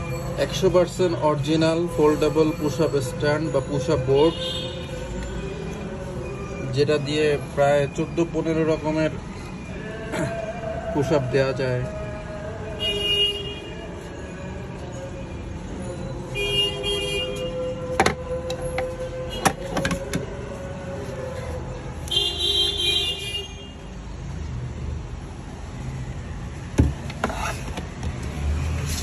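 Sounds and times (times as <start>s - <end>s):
street traffic: 0.0s - 29.0s
vehicle horn: 4.3s - 5.0s, 12.8s - 13.9s, 16.4s - 17.9s, 18.6s - 19.8s, 22.1s - 23.8s
hard plastic knocking: 19.4s - 20.3s, 26.8s - 28.2s.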